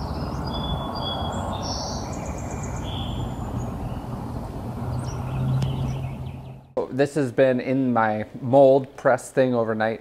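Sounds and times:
birds singing and chirping: 0.0 - 6.8.

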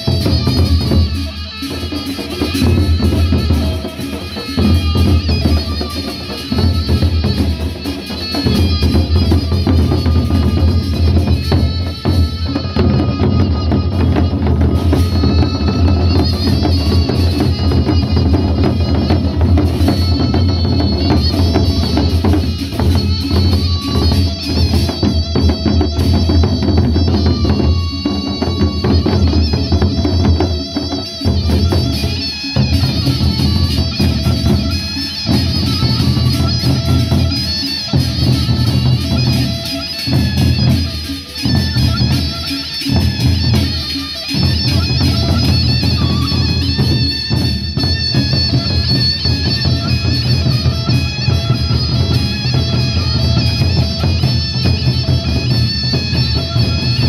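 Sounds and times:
barrel drums beaten with sticks: 0.0 - 57.0.

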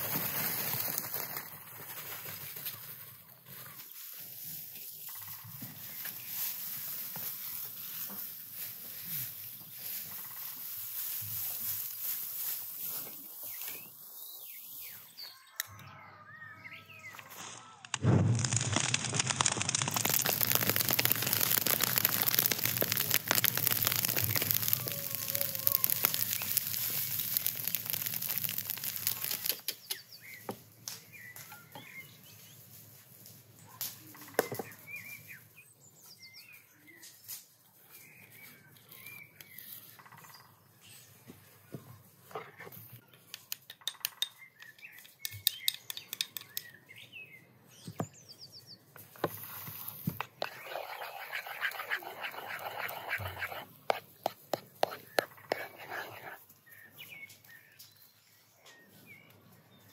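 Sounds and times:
straw fire crackling: 0.0 - 13.8, 17.3 - 30.2, 49.0 - 56.5
small birds chirping: 4.9 - 8.2, 12.9 - 17.3, 19.4 - 32.8, 33.6 - 59.9.

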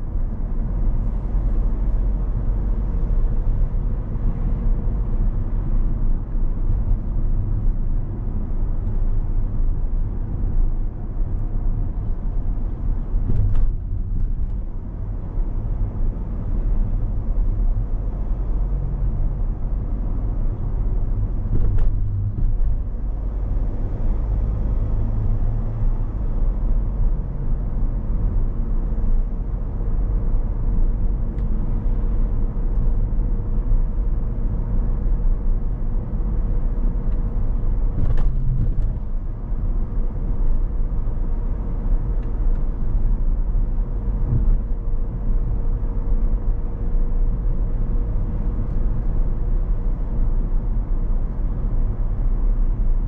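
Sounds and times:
car engine and tyre rumble: 0.0 - 53.0.

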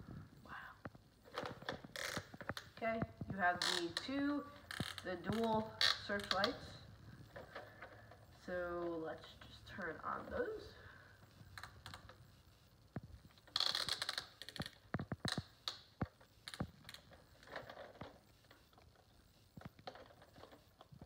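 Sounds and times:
plastic toy scraping rattle: 16.4 - 19.1.

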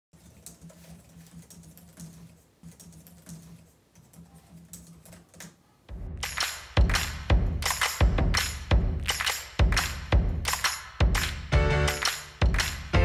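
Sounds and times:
laptop keyboard typing: 0.2 - 5.6.

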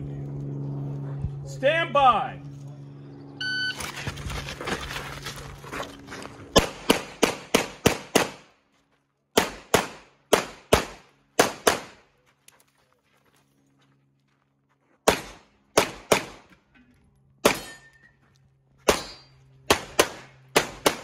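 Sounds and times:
shot timer beep: 3.4 - 3.8
pistol shots: 6.6 - 8.5, 9.4 - 12.0, 15.1 - 16.5, 17.4 - 17.8, 18.9 - 21.0.

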